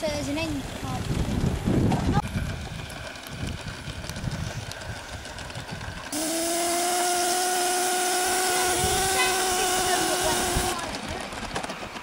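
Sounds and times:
steam hiss with whistling tone: 6.2 - 10.8.

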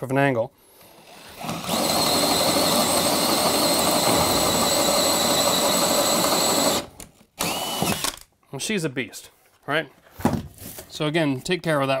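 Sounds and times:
cordless drill boring into wood: 0.8 - 8.3.

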